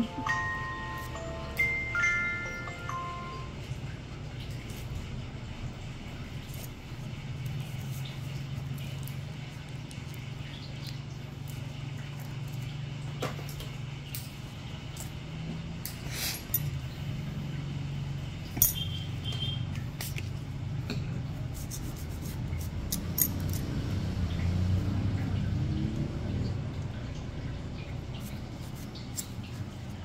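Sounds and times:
metal nails clinking: 0:22.9 - 0:23.7.

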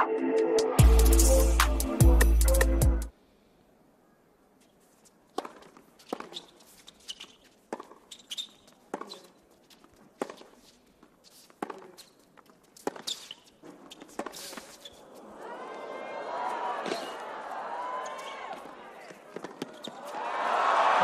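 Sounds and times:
shoe squeaks on court: 0:04.6 - 0:15.3, 0:18.0 - 0:20.2
racket hitting tennis ball: 0:05.3 - 0:15.0.

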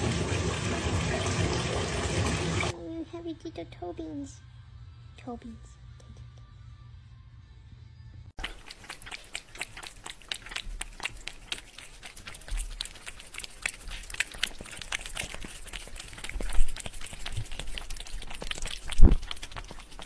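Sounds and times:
cats licking glass: 0:08.4 - 0:20.0.

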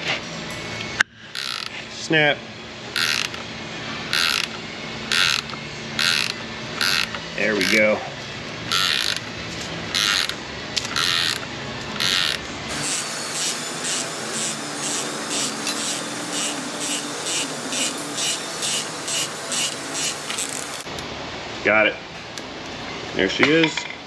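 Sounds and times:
ratchet wrench clicking: 0:01.3 - 0:01.7, 0:03.0 - 0:03.4, 0:04.1 - 0:07.8, 0:08.7 - 0:09.3, 0:09.9 - 0:12.4.

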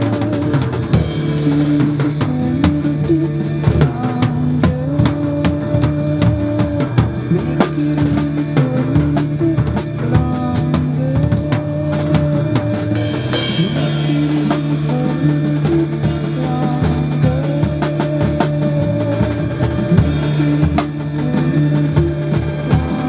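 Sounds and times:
drum kit playing: 0:00.0 - 0:23.0
recorded rock song: 0:00.0 - 0:23.0.

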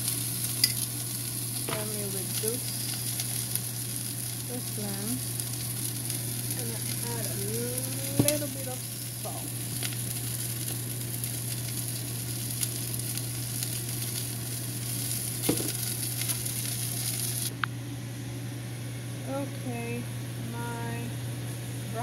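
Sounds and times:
broccoli sizzling in oil: 0:00.0 - 0:17.6.

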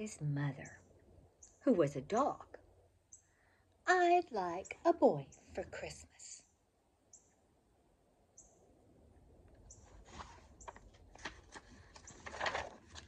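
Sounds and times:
bird chirps: 0:00.6 - 0:02.4, 0:03.1 - 0:03.4, 0:06.4 - 0:07.4, 0:08.3 - 0:08.7
book page turning: 0:09.8 - 0:13.0.

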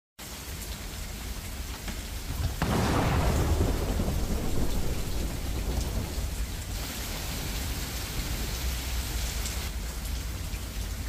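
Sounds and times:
steady rain falling: 0:00.2 - 0:11.0
raindrops tapping: 0:00.6 - 0:07.8
thunder rumbling: 0:02.2 - 0:07.6.

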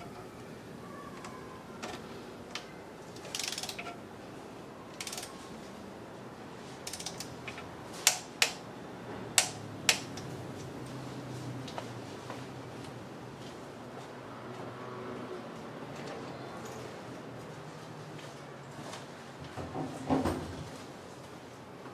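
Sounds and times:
torque wrench release clicks: 0:03.2 - 0:03.9, 0:05.0 - 0:05.3, 0:06.9 - 0:08.6
ratchet clicking: 0:03.2 - 0:04.0, 0:05.0 - 0:05.4, 0:06.8 - 0:08.6.

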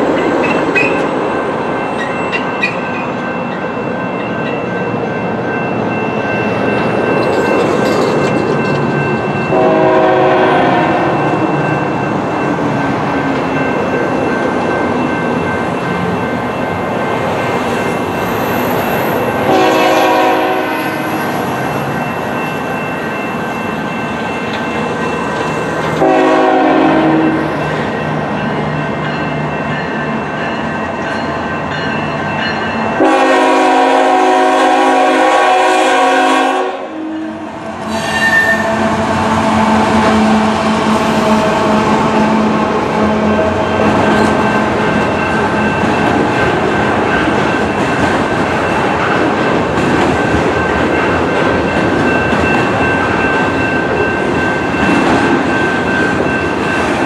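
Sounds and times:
train rumble: 0:00.0 - 0:57.0
locomotive horn blasts: 0:09.5 - 0:11.4, 0:19.4 - 0:21.2, 0:26.0 - 0:27.4, 0:33.0 - 0:40.6.

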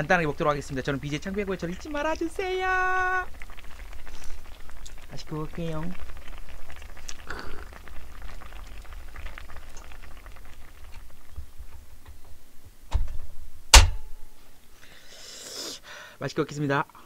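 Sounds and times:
stew bubbling in a pan: 0:00.0 - 0:12.9
sharp knocks: 0:12.9 - 0:14.2.

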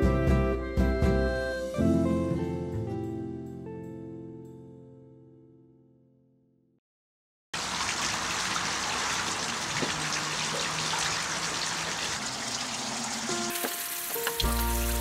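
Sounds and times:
music with deep bass line: 0:14.4 - 0:15.0.

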